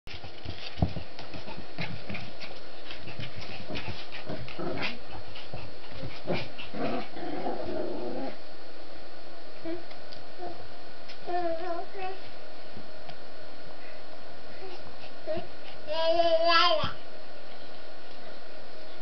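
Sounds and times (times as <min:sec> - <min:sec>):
dogs making low vocal sounds: 0:01.3 - 0:08.4.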